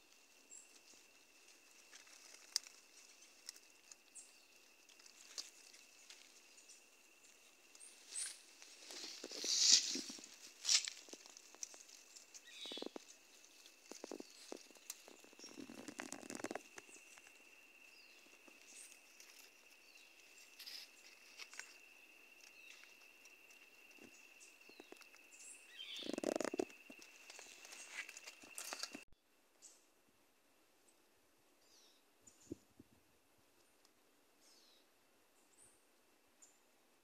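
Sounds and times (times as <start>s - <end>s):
ferns and grass rustling: 0.0s - 29.1s.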